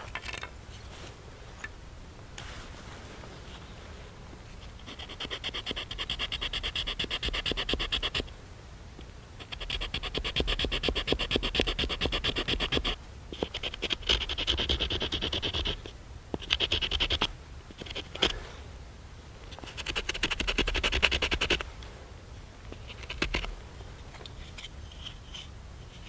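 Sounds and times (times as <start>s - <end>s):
stone rasping on wood: 4.8s - 8.2s, 9.4s - 18.4s.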